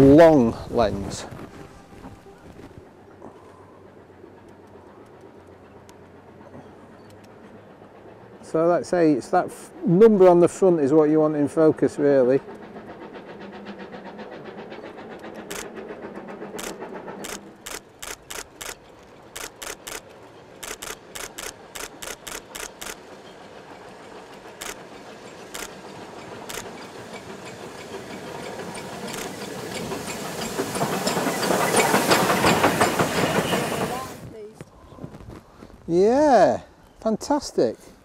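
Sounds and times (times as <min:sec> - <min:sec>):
steam locomotive passing: 0:00.0 - 0:38.0
camera shutters clicking: 0:19.4 - 0:20.0, 0:20.6 - 0:23.0.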